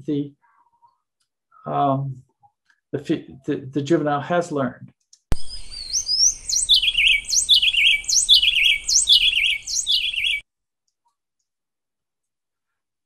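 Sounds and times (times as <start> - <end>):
wrens singing a duet: 5.3 - 10.4.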